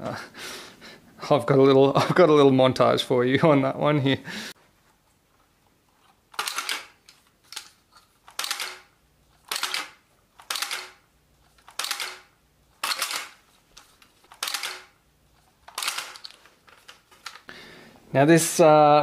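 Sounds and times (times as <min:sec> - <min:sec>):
sharp plastic clacks: 0:06.3 - 0:15.0, 0:15.6 - 0:17.5.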